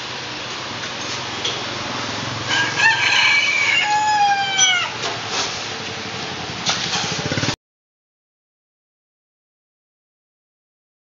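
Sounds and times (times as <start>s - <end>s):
rooster crowing: 2.4s - 5.0s.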